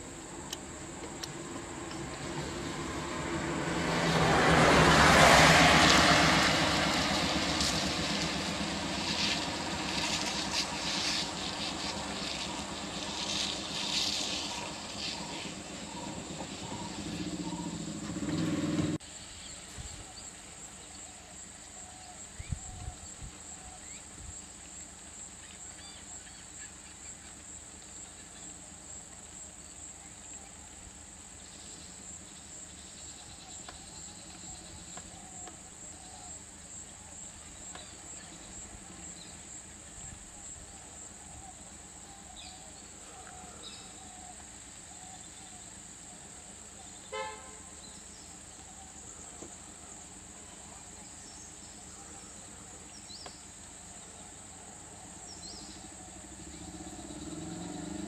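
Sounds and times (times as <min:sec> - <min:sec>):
vehicle engines and tyres passing: 0:00.0 - 0:19.7, 0:31.3 - 0:58.0
insects chirring: 0:00.0 - 0:58.0.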